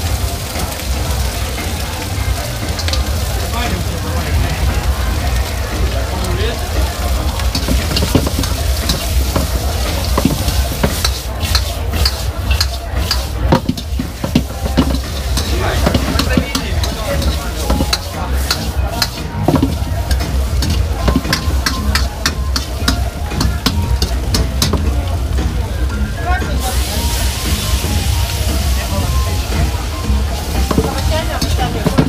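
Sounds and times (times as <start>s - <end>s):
frying sizzle: 0.0s - 32.0s
spatula scraping and clanking wok: 7.3s - 25.0s, 30.4s - 32.0s.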